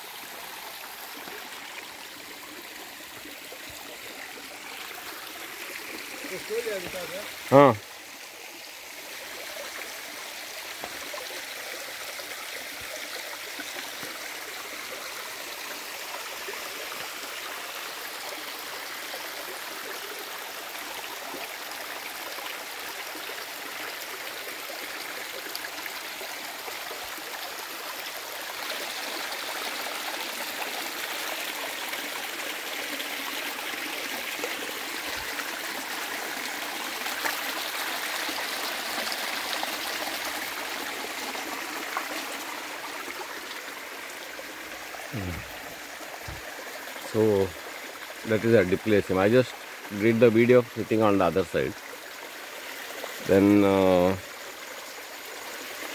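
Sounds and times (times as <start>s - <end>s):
stream flowing over stones: 0.0s - 55.9s.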